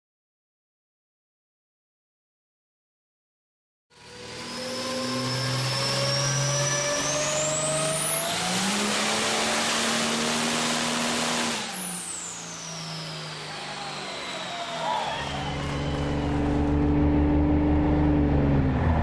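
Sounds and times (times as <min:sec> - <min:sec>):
diesel engine under load: 0:04.1 - 0:19.0
turbo whistle: 0:12.2 - 0:16.7.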